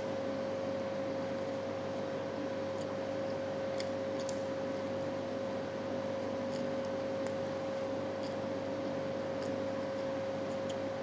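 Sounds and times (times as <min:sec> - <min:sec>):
steady mid-pitched hum: 0:00.0 - 0:11.0
person chewing food: 0:02.6 - 0:05.1, 0:06.2 - 0:11.0.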